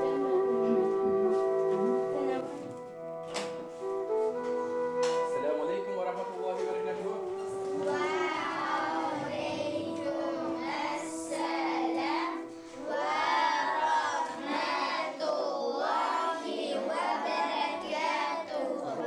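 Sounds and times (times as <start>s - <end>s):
children singing in unison: 7.7s - 19.0s.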